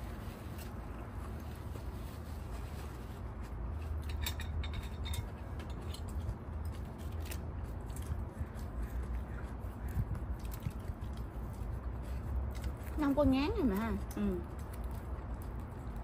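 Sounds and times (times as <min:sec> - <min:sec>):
chewing crunches: 0:05.6 - 0:16.0.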